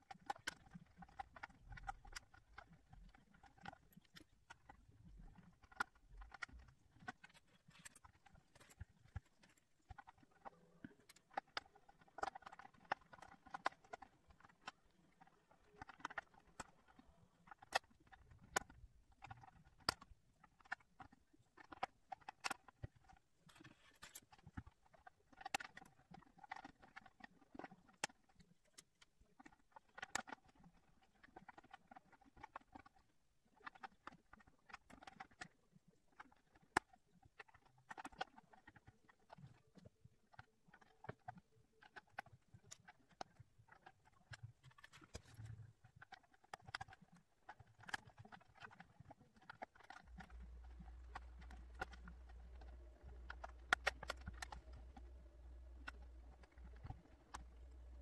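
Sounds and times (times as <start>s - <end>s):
plastic puzzle pieces clicking: 5.4s - 58.0s.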